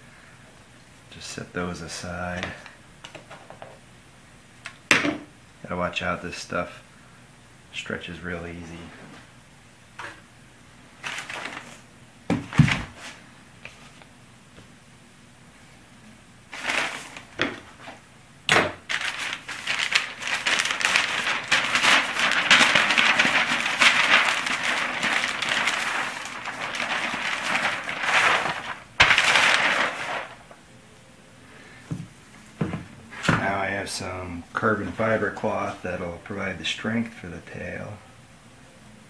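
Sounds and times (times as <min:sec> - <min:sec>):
cloth and wrapping rustling: 0:16.5 - 0:18.0, 0:18.9 - 0:30.6.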